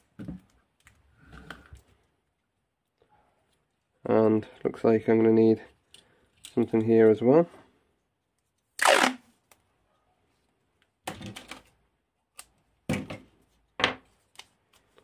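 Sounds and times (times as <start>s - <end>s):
tape ripping off roll: 8.8s - 9.3s.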